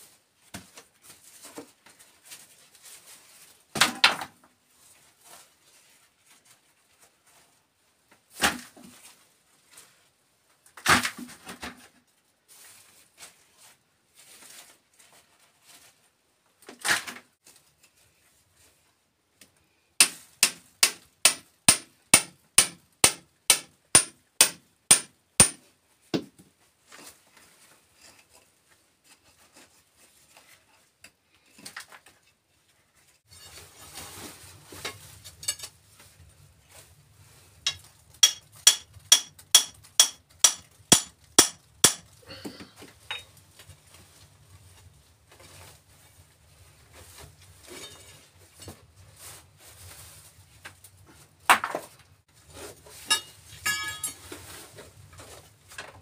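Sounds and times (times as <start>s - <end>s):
hammer striking chisel into rock: 20.0s - 25.6s, 37.7s - 42.0s.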